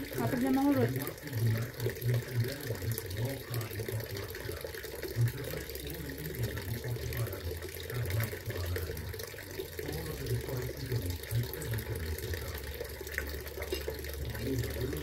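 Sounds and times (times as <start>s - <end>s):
water fountain splashing and trickling: 0.0s - 15.0s.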